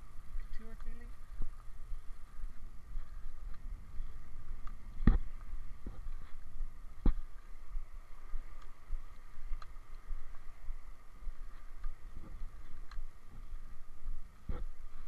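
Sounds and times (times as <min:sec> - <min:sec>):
faint clicks: 0:08.4 - 0:10.5, 0:11.5 - 0:13.6.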